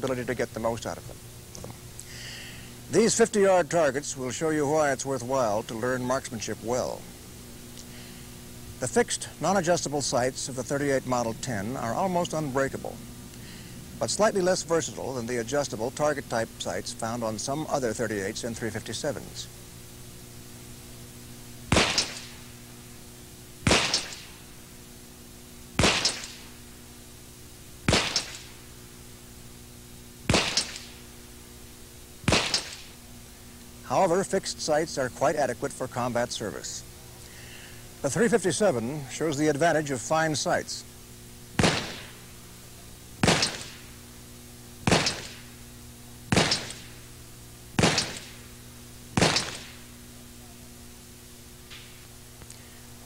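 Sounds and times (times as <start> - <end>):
revolver gunshots with echo: 21.7 - 22.4, 23.6 - 24.4, 25.8 - 26.5, 27.9 - 28.6, 30.3 - 31.0, 32.2 - 33.0, 41.6 - 42.2, 43.2 - 43.9, 44.8 - 45.5, 46.3 - 47.0, 47.8 - 48.5, 49.2 - 49.9.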